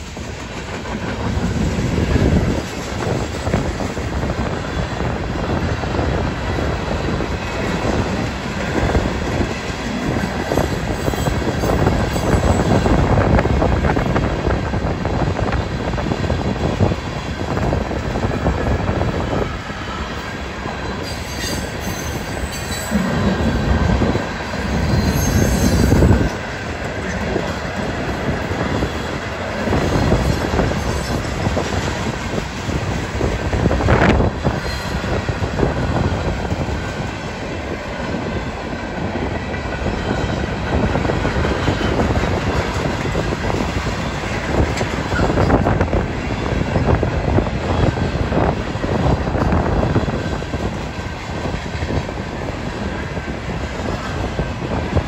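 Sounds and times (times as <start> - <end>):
train wheels clattering over rail joints: 0.0 - 13.2, 39.2 - 55.0
wind buffeting microphone: 0.0 - 55.0
high wheel squeal: 20.8 - 23.6, 24.5 - 26.4.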